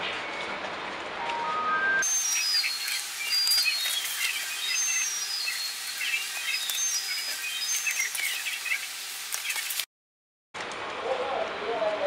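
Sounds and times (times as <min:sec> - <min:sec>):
birds chirping: 0:02.0 - 0:09.8
steady hiss: 0:02.0 - 0:09.9.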